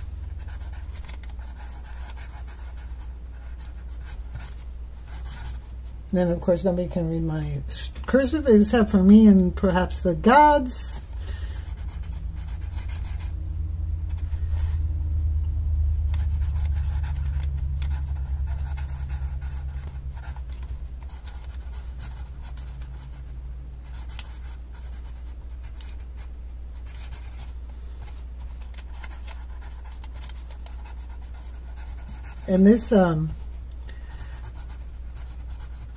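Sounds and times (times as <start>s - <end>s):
low steady hum: 0.0s - 35.9s
pencil scratching on paper: 0.2s - 5.6s, 11.6s - 13.3s, 16.2s - 33.3s, 34.1s - 35.9s.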